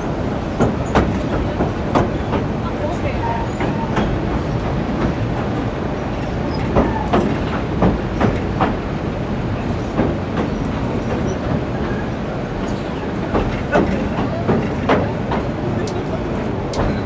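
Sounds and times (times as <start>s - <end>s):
train wheels rumbling on rails: 0.0s - 17.0s.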